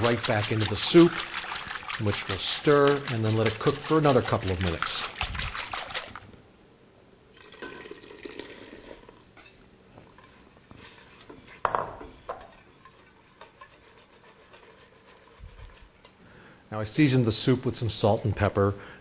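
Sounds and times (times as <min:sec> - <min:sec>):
whisk clinking against pot: 0:00.0 - 0:06.2, 0:11.5 - 0:16.2
whisk stirring soup: 0:00.0 - 0:06.3, 0:10.1 - 0:11.6, 0:12.3 - 0:16.2.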